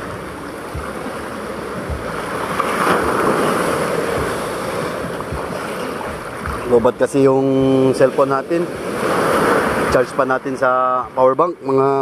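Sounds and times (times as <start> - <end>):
wind on microphone: 0.0 - 8.0
sea surf breaking: 0.0 - 12.0.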